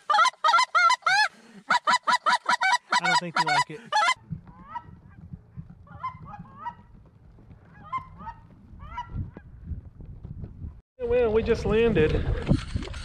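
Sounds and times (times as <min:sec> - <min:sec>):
geese yelping calls: 0:00.0 - 0:05.0, 0:05.9 - 0:06.9, 0:07.7 - 0:09.1.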